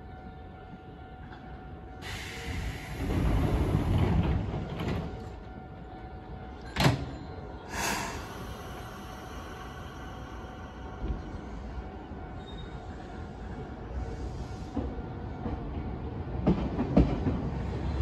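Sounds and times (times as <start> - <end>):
train doors sliding shut: 6.7 - 9.2.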